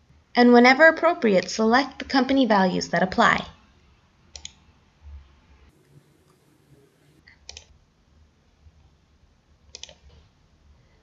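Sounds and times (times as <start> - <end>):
computer mouse clicks: 4.3 - 4.6, 7.3 - 7.7, 9.7 - 10.2
low hum: 5.0 - 7.2.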